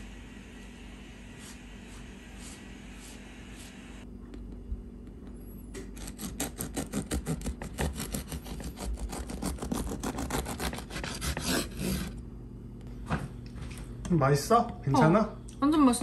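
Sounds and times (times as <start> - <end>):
bread knife sawing through loaf: 6.0 - 12.2.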